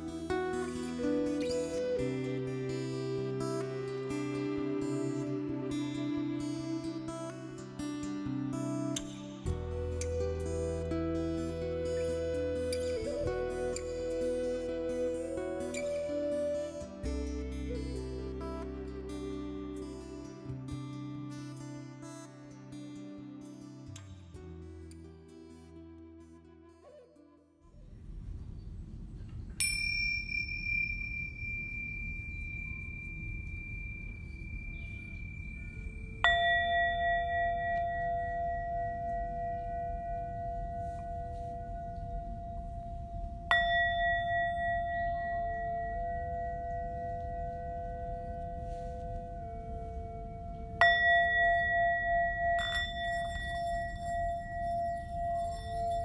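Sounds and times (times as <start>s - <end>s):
struck metal bowl ringing: 29.6s - 56.0s.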